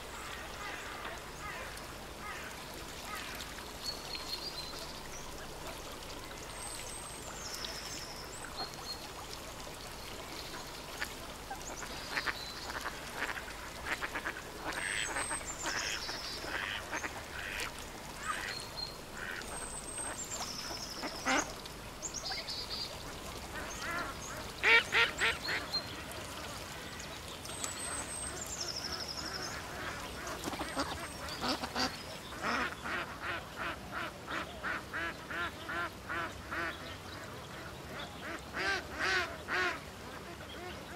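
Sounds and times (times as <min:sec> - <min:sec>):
ducks quacking: 0:29.8 - 0:36.8.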